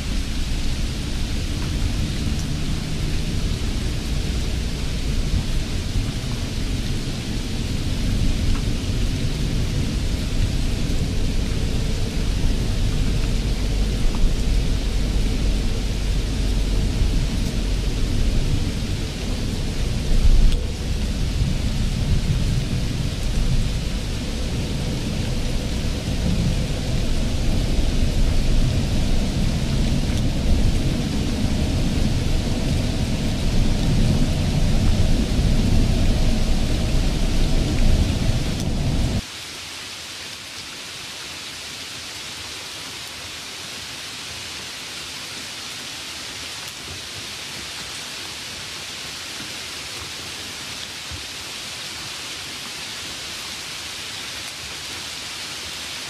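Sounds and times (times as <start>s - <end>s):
low rumbling noise: 0.0s - 39.2s
steady hiss: 0.0s - 56.0s.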